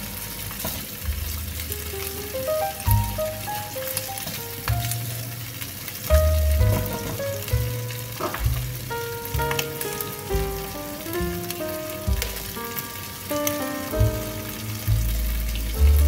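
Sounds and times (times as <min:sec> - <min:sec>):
beans sizzling in a pan: 0:00.0 - 0:16.0.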